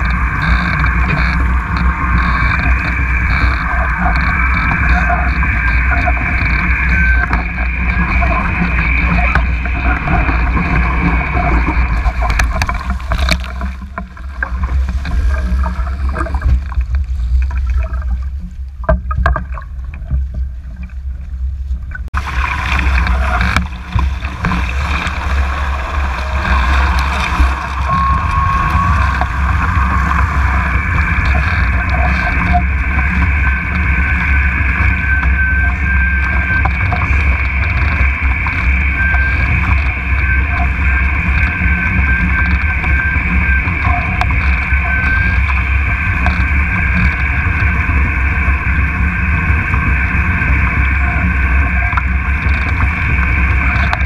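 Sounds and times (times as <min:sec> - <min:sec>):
water rushing and splashing: 0:00.0 - 0:54.0
wind buffeting microphone: 0:21.0 - 0:54.0.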